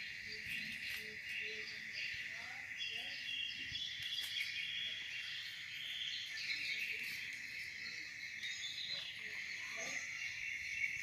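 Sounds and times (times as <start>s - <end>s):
insects chirring: 0.0s - 11.0s.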